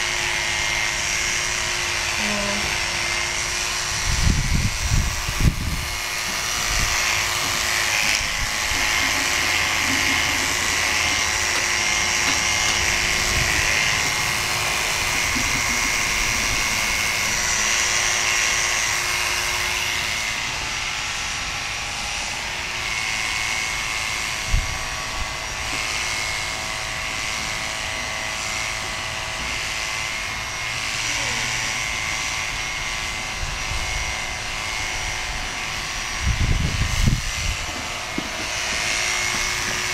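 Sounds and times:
electric clippers motor hum: 0.0s - 39.9s.

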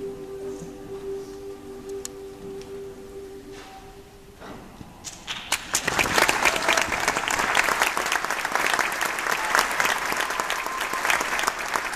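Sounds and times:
audience applause: 5.2s - 11.9s.

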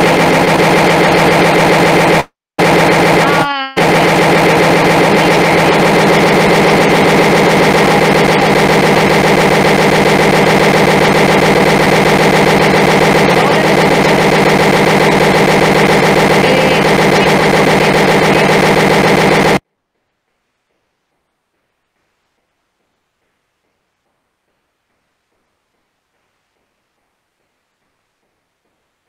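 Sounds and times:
rapid stuttering buzz: 0.0s - 19.6s.

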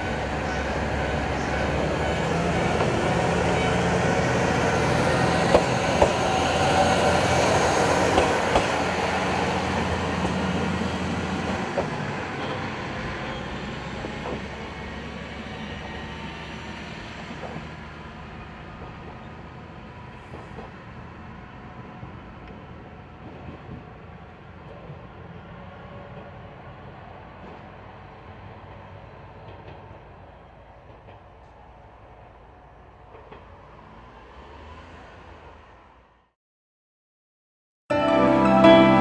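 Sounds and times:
diesel railcar engine running: 0.0s - 23.8s.

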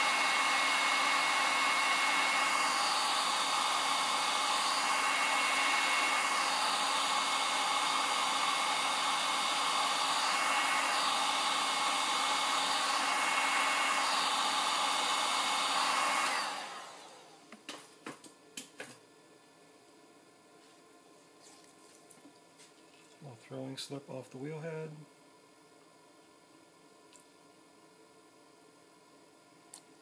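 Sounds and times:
heat gun blowing air: 0.0s - 17.5s.

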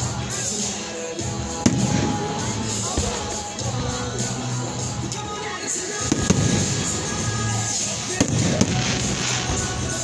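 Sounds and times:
music playing: 0.0s - 10.0s
fireworks bangs: 1.6s - 3.4s, 6.0s - 10.0s.

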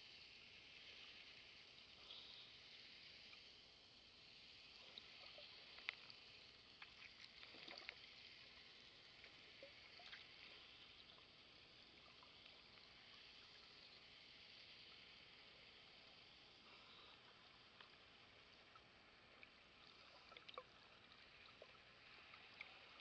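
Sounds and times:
soft underwater hiss: 0.0s - 23.0s
small underwater clicks and pops: 4.6s - 23.0s.

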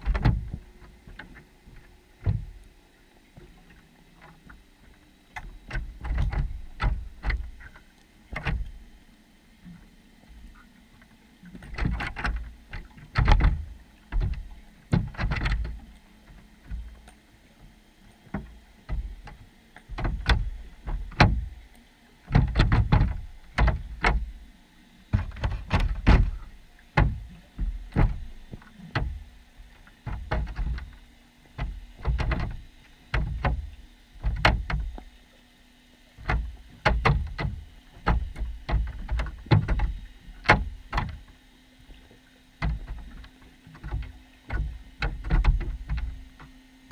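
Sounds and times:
muffled underwater knocks: 0.0s - 2.6s, 5.4s - 8.8s, 11.5s - 17.2s, 18.2s - 21.6s, 22.3s - 24.3s, 25.1s - 29.3s, 30.0s - 35.1s, 36.2s - 41.4s, 42.6s - 46.9s
faint steady hum: 0.0s - 46.9s.

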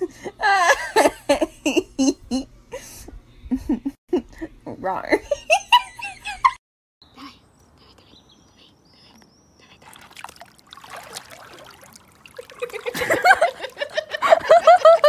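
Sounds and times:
pool water splashing: 9.8s - 15.0s.

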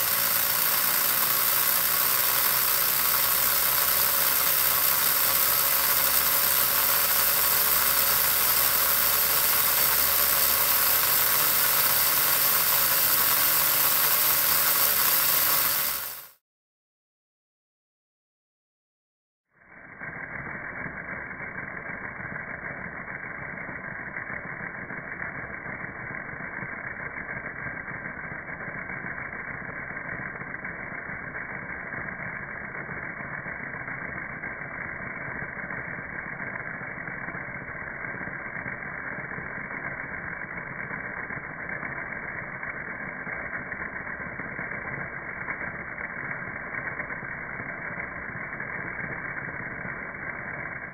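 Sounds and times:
small motor low drone: 0.0s - 16.4s, 19.6s - 50.9s.

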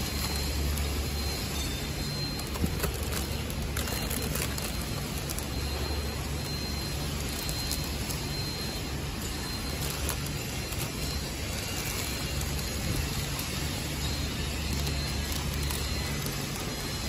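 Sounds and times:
faint high whine: 0.0s - 17.0s
packing machine humming: 0.0s - 17.0s.

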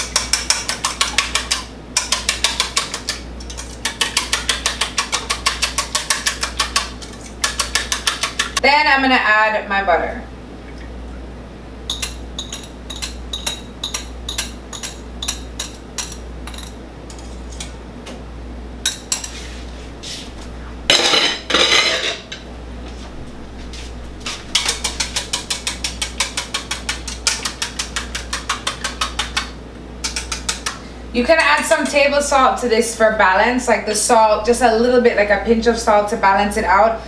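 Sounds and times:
rapid whisk clicking: 0.0s - 8.6s, 24.2s - 30.8s
whisk scraping bowl: 0.0s - 8.6s, 19.1s - 20.5s, 23.6s - 30.8s
wire whisk tapping metal bowl: 0.0s - 8.6s, 24.5s - 30.8s
low steady hum: 0.0s - 37.0s.

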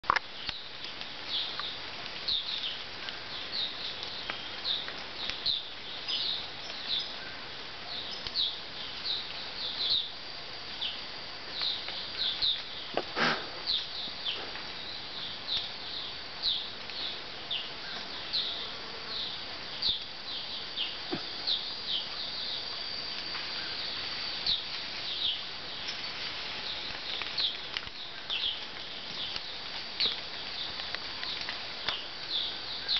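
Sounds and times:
faint high insect hum: 0.1s - 32.9s.

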